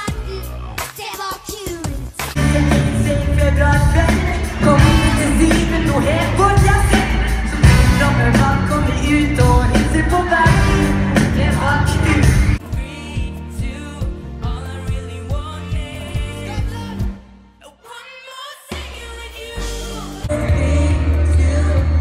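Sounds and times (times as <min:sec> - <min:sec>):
loud band playing: 0:00.0 - 0:17.3, 0:18.7 - 0:22.0
boys singing pop song: 0:00.0 - 0:22.0.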